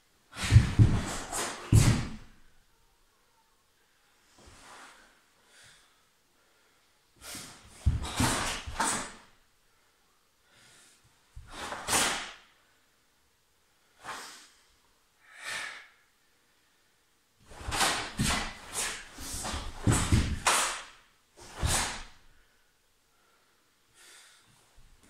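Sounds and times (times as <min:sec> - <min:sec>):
bare feet thudding on wooden floor: 0:00.4 - 0:02.3, 0:07.8 - 0:09.1, 0:17.5 - 0:20.6
cloth swishing and snapping: 0:07.8 - 0:09.2, 0:11.4 - 0:12.4, 0:17.5 - 0:22.2.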